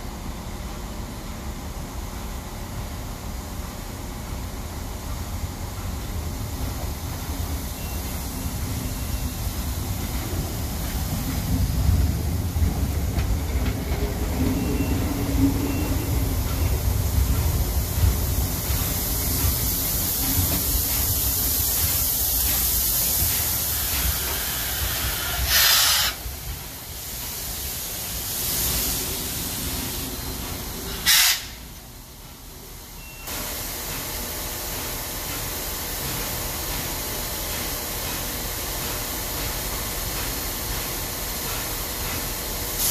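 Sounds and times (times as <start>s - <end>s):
steam locomotive rumbling: 0.0s - 42.9s
steam hissing: 5.7s - 32.0s, 33.3s - 42.9s
loud burst of steam hiss: 17.0s - 31.8s, 39.5s - 42.9s.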